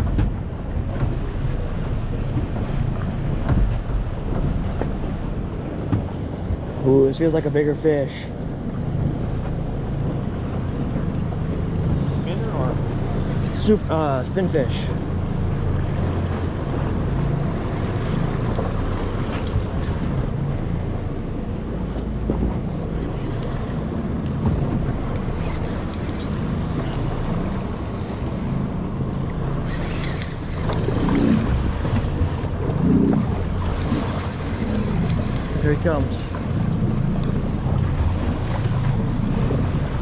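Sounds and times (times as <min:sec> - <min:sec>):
boat motor humming: 0:00.0 - 0:40.0
water washing against hull: 0:00.0 - 0:40.0
wind buffeting microphone: 0:08.3 - 0:40.0.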